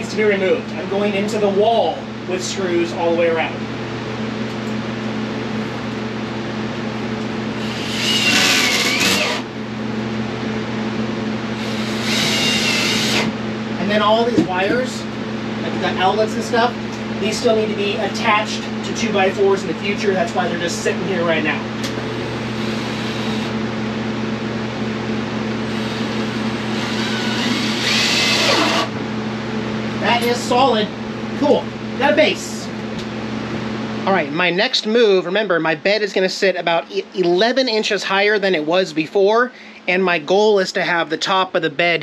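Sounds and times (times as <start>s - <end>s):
steady mechanical hum: 0.0s - 42.0s
cordless drill driving screw: 7.6s - 9.5s, 11.6s - 13.3s, 25.7s - 28.9s.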